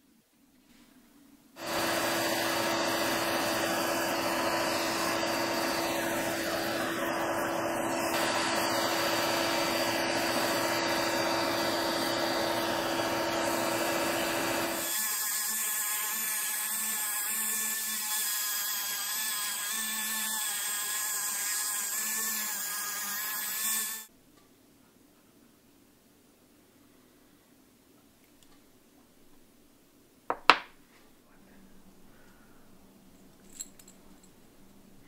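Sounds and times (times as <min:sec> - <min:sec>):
belt sander sanding wood: 0:01.6 - 0:24.1
rotary tool whine grinding wood: 0:01.6 - 0:24.1.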